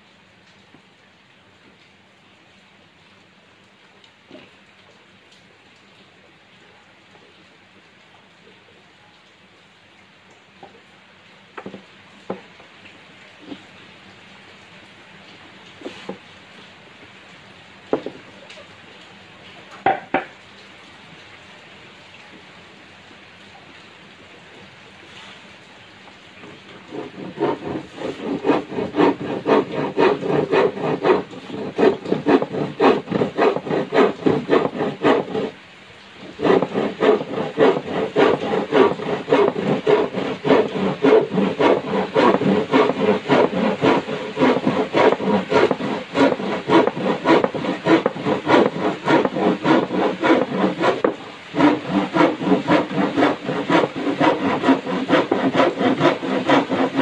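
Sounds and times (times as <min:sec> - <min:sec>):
hand saw cutting plywood: 0:26.4 - 0:35.6, 0:36.2 - 0:57.0.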